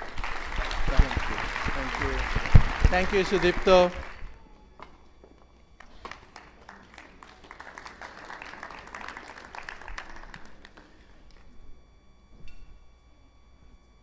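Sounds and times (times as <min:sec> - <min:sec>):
audience applause: 0:00.0 - 0:04.2, 0:05.8 - 0:11.0.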